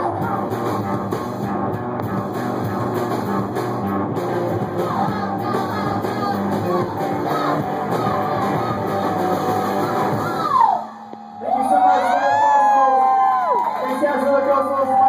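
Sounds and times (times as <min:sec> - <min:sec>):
drums: 0:00.0 - 0:11.3
electric guitar: 0:00.0 - 0:13.6
person yelling singing: 0:04.7 - 0:10.9.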